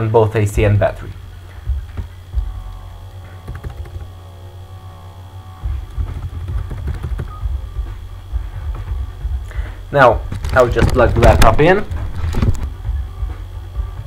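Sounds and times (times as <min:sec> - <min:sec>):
low rumble: 0:01.1 - 0:14.0
laptop keyboard typing: 0:03.4 - 0:04.2, 0:05.8 - 0:07.5.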